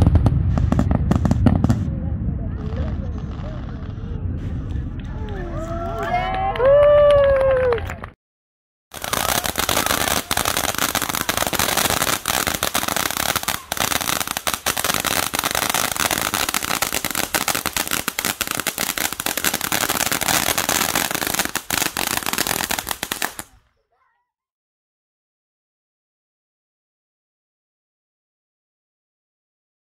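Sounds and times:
firework crackling and popping: 0:00.0 - 0:06.8, 0:08.9 - 0:23.6.

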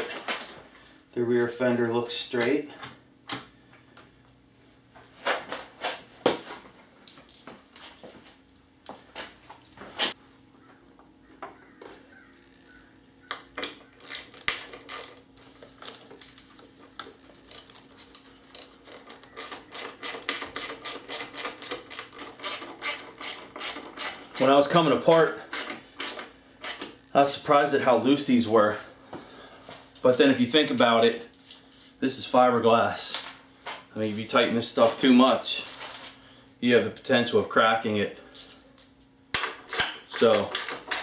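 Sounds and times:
hand ratchet clicking: 0:17.5 - 0:24.5.

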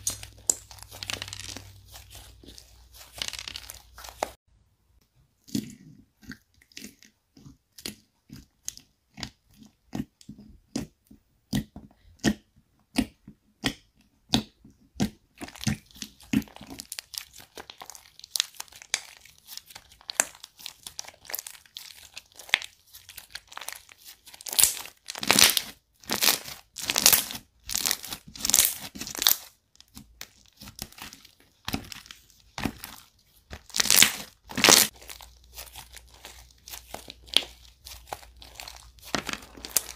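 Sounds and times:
slime clicking and popping: 0:11.5 - 0:39.9.

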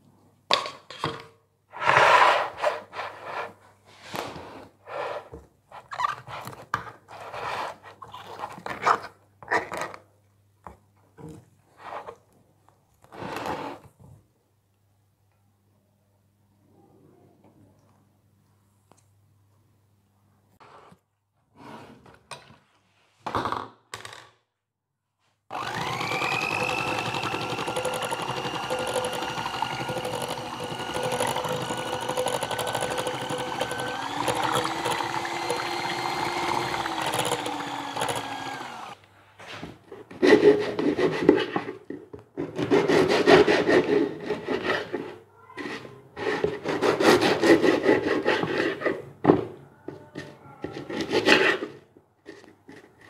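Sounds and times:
electric hand mixer whining: 0:25.5 - 0:39.0
knife sawing through bread: 0:46.2 - 0:48.8.

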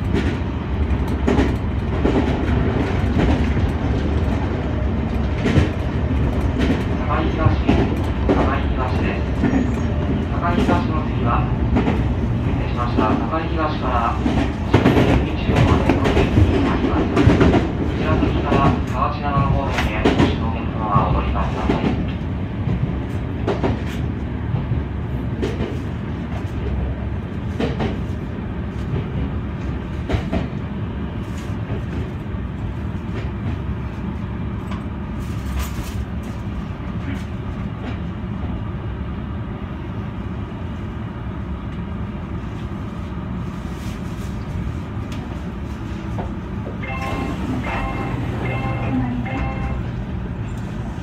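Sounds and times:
clacks over rail joints: 0:00.0 - 0:04.4, 0:05.1 - 0:08.6, 0:14.2 - 0:24.8, 0:25.4 - 0:26.5, 0:27.5 - 0:28.1, 0:29.9 - 0:30.6
train wheels rumbling on rail: 0:00.0 - 0:51.0.

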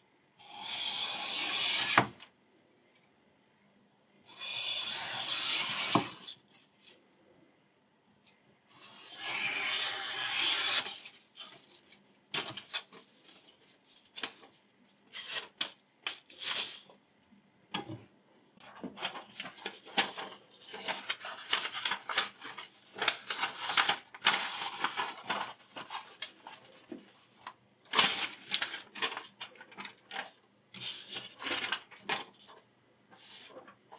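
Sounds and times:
knife slicing paper: 0:08.8 - 0:11.2
paper rustling: 0:18.6 - 0:33.9.

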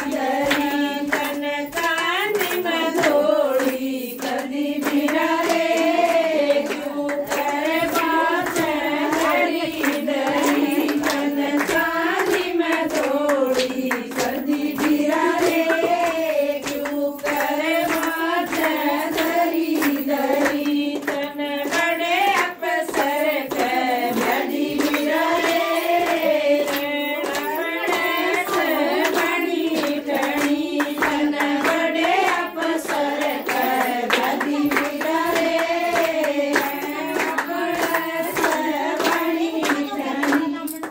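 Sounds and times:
hand clapping in time: 0:00.0 - 0:40.9
women singing folk song: 0:00.0 - 0:40.9.

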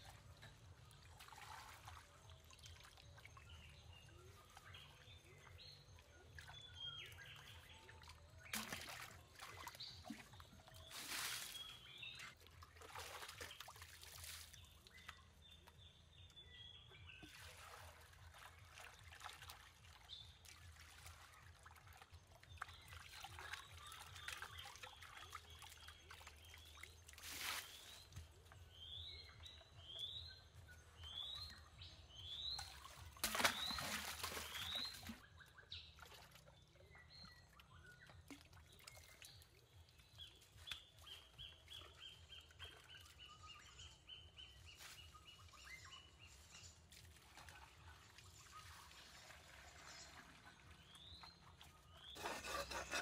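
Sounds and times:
water trickling and pouring: 0:00.0 - 0:53.0.

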